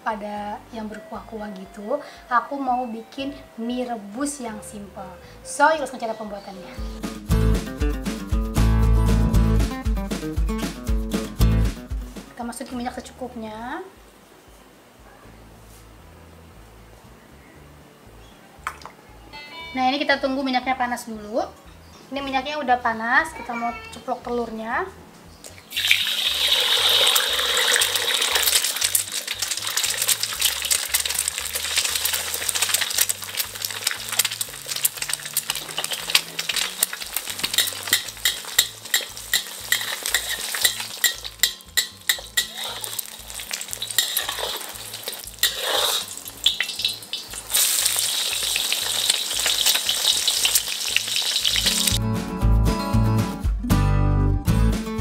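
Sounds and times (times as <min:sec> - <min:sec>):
egg sizzling in hot oil: 0:25.7 - 0:52.0
oil spattering pops: 0:27.8 - 0:52.0.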